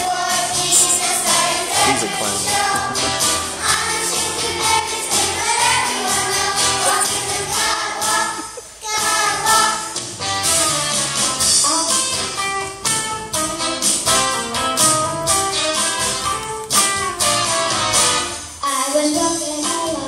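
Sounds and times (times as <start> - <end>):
children's choir singing: 0.0 - 10.0.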